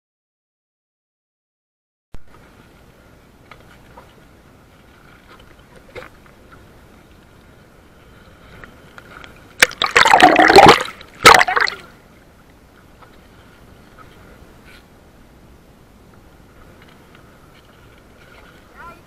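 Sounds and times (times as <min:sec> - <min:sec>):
seawater splashing: 0:03.8 - 0:14.4.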